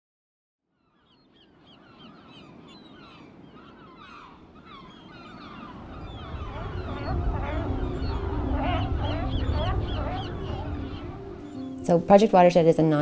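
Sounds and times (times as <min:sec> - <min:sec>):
flock of birds calling: 0:00.8 - 0:11.8
low rumbling noise: 0:06.0 - 0:11.5.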